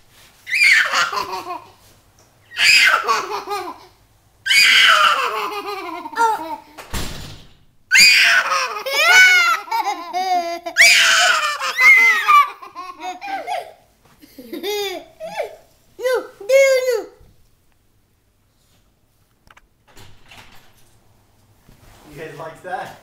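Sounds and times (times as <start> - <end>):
people laughing high-pitched: 8.1 - 15.5.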